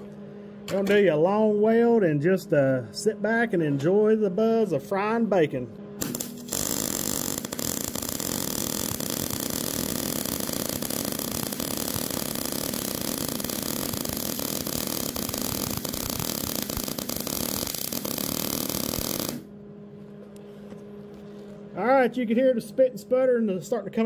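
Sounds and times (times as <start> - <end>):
welding arc crackling and sputtering: 6.0 - 19.5.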